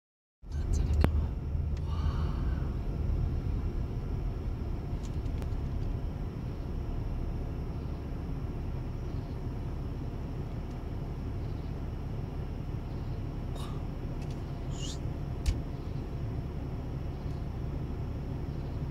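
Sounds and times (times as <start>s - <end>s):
low outdoor rumbling: 0.4s - 18.9s.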